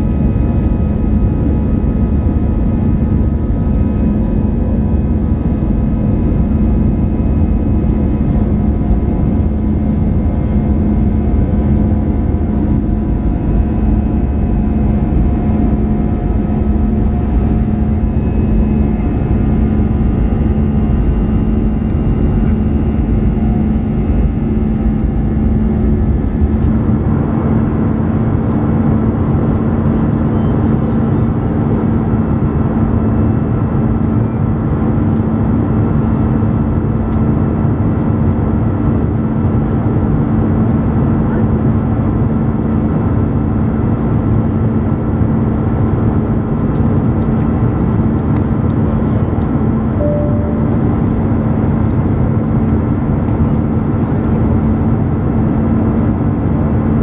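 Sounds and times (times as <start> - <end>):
second hum: 0.0 - 31.4, 49.1 - 54.2
jet engine and airflow roar: 0.0 - 57.0
low hum: 0.0 - 57.0.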